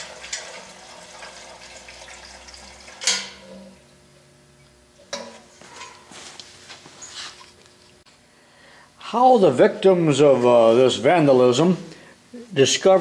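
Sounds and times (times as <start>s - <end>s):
gasoline trickling into tank: 0.0s - 3.8s.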